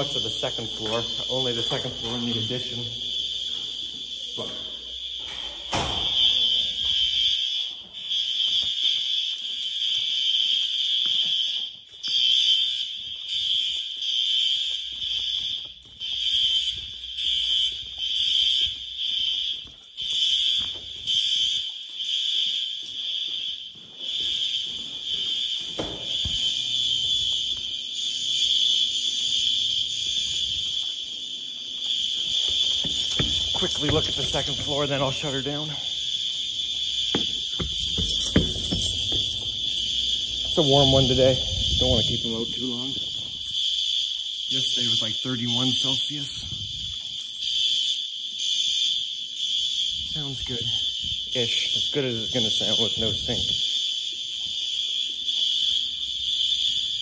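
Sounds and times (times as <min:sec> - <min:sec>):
fire alarm horn pulsing: 0:00.0 - 0:57.0
thumps: 0:37.0 - 0:39.9.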